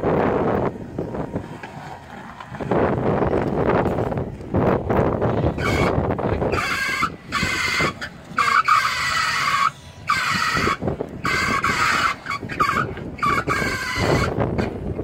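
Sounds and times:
low engine rumble: 0.0s - 15.0s
high-pitched squeals: 5.3s - 14.7s.

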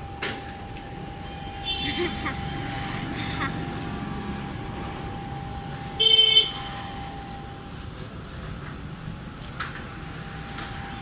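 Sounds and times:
street noise: 0.0s - 11.0s
vehicle horn honk: 1.6s - 2.0s, 5.9s - 6.9s.

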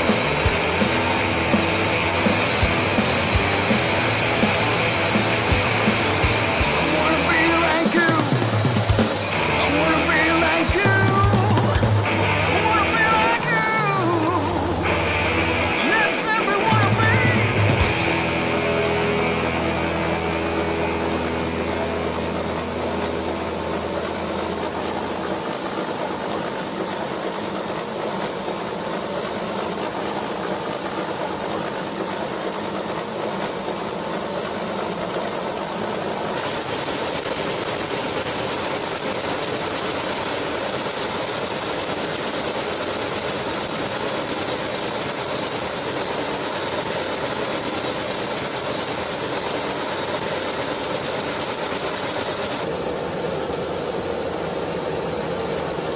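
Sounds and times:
steady rushing noise: 0.0s - 31.5s
low hum: 0.0s - 34.5s.

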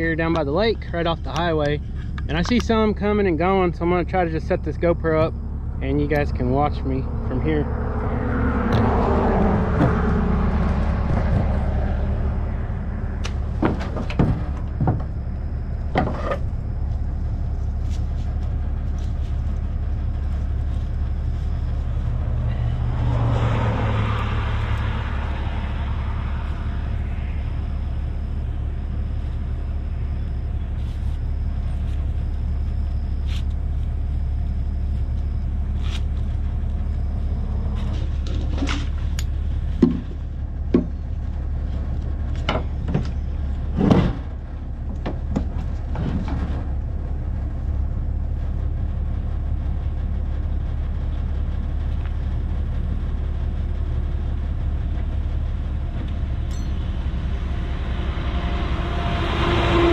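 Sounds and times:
highway traffic rumble: 0.0s - 59.9s
vehicle approaching: 0.0s - 59.9s
wooden box knocking and clattering: 39.8s - 40.1s.

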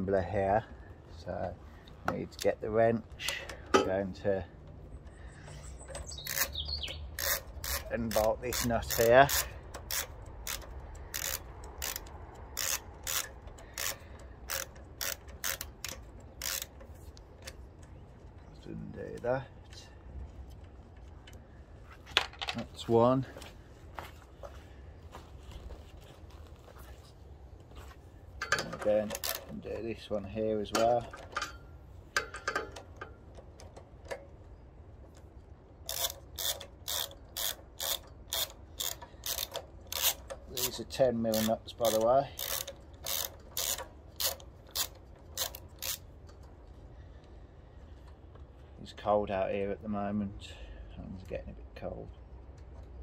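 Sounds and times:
ratchet wrench clicking: 6.2s - 17.6s, 28.4s - 29.6s, 35.8s - 46.5s.

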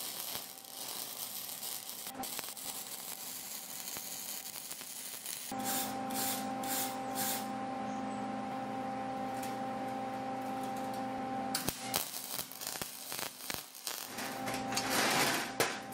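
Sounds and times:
welding arc crackling and sizzling: 0.0s - 7.6s, 9.2s - 15.9s
steady hum: 5.5s - 13.5s.

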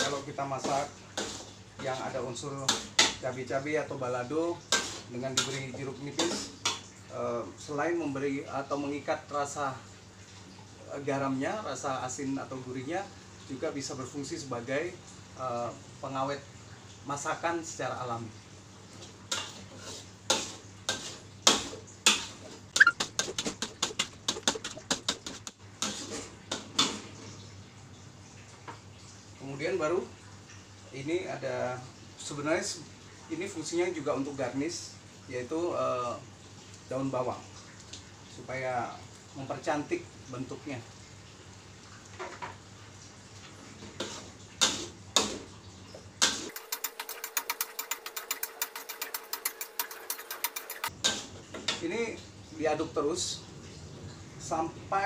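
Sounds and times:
metal spatula scraping a wok: 0.0s - 2.0s, 4.7s - 5.6s, 19.3s - 22.9s, 25.3s - 26.9s, 46.3s - 51.4s
spatula scraping paste in wok: 4.7s - 5.6s, 46.3s - 51.4s.

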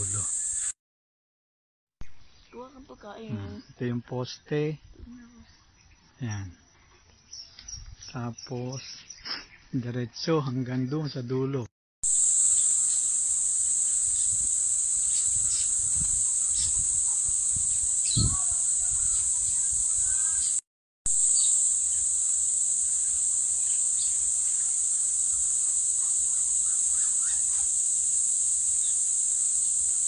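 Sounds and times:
insects droning: 0.0s - 0.8s, 12.0s - 30.0s
bird chirps: 15.0s - 20.6s, 21.2s - 22.1s, 23.0s - 27.7s.

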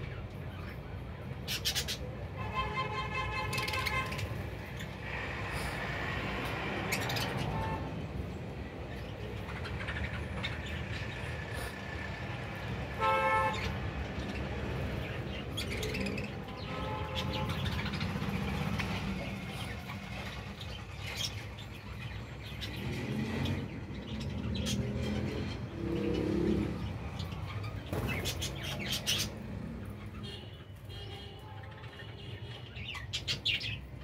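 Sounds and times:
budgerigars chirping: 1.4s - 2.0s, 27.2s - 29.4s.

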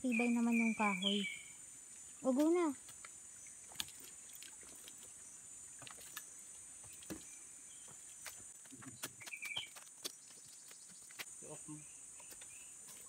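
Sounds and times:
footsteps on bamboo and dry leaves: 2.2s - 11.4s, 12.1s - 13.0s.

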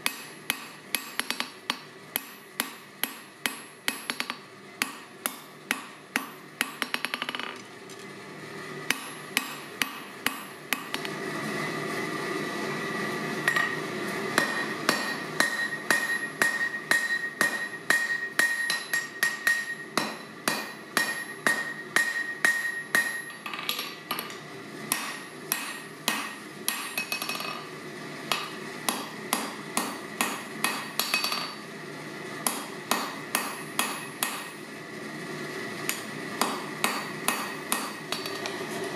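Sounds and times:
hammer striking steel on anvil: 0.0s - 7.6s, 8.9s - 11.2s, 13.4s - 27.7s, 28.3s - 31.6s, 32.4s - 34.6s, 35.9s - 38.6s
metallic ringing tone: 14.4s - 20.0s.

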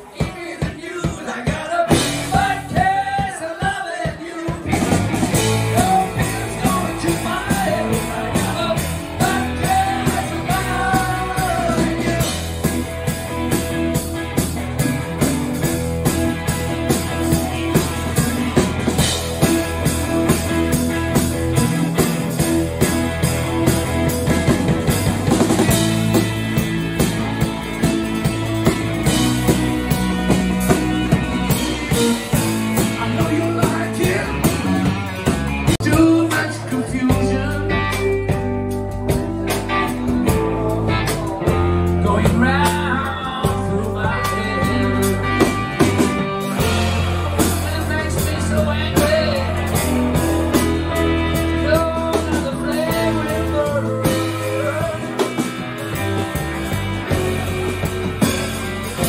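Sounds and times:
person singing: 0.0s - 13.2s, 28.1s - 57.2s
drum kit: 0.0s - 59.0s
electric guitar: 0.0s - 59.0s
electric bass: 1.9s - 3.0s, 4.6s - 59.0s.

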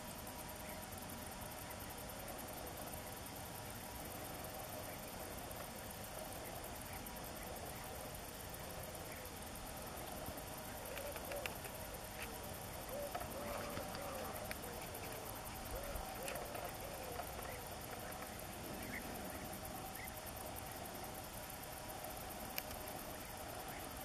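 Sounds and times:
steady hiss: 0.0s - 24.0s
faint clicks: 10.8s - 19.0s, 22.4s - 23.2s.

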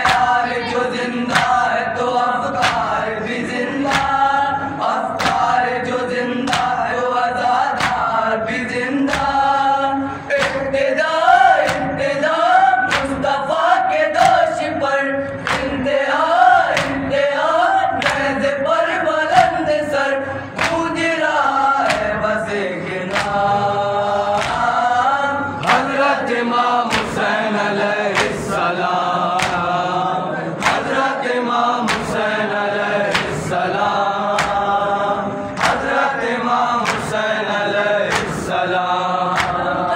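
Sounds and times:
chest-beating slaps: 0.0s - 0.4s, 1.3s - 1.6s, 2.5s - 3.0s, 3.8s - 4.2s, 5.2s - 5.6s, 6.4s - 6.8s, 7.7s - 8.1s, 9.1s - 9.5s, 10.3s - 10.8s, 12.8s - 13.2s, 15.3s - 15.8s, 16.7s - 17.1s, 18.0s - 18.4s, 20.6s - 20.9s, 21.8s - 22.2s, 23.1s - 23.4s, 24.3s - 24.7s, 25.6s - 27.4s, 28.1s - 29.8s, 30.5s - 32.4s, 33.0s - 33.6s, 34.3s - 34.8s, 35.5s - 36.1s, 36.8s - 37.3s, 38.1s - 38.6s, 39.3s - 39.6s
men reciting in unison: 0.0s - 39.9s.

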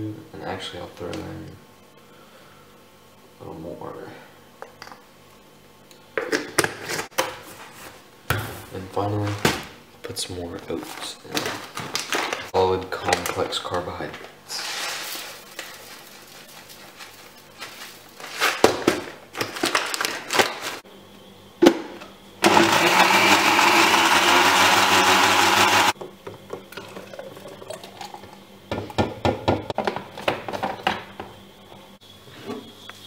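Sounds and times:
blender running: 22.4s - 26.0s.

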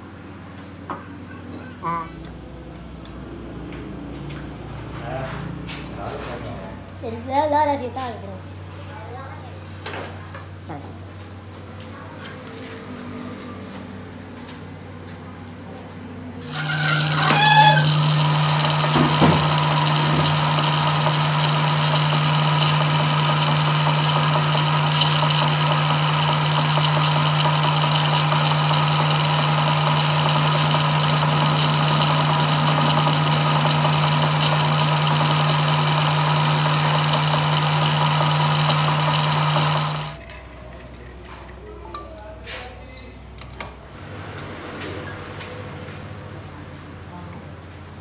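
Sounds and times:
drill boring into metal: 16.5s - 40.2s
metal lathe humming: 16.5s - 40.2s.

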